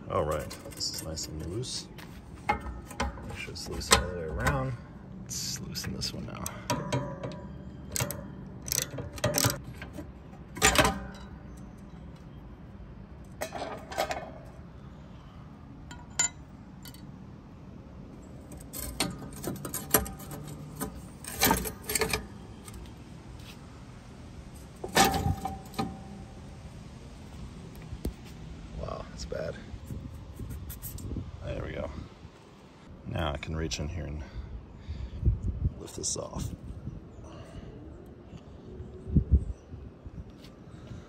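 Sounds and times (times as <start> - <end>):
metal clinks and knocks: 5.9 - 12.4, 15.8 - 17.1, 24.6 - 26.3
socket wrench loosening bolts: 6.4 - 10.0
bolts set down on pavers: 6.5 - 12.3, 13.2 - 14.6, 24.7 - 26.1.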